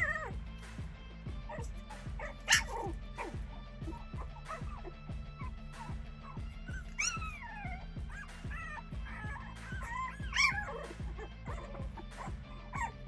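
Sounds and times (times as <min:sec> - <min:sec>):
puppies whimpering and yipping: 0:00.0 - 0:00.4, 0:01.4 - 0:13.0
background music with steady beat: 0:00.0 - 0:13.0.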